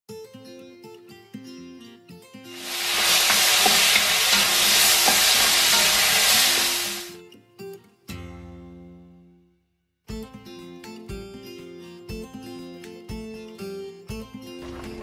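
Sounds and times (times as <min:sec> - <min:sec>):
food sizzling in a wok: 0:02.5 - 0:07.2.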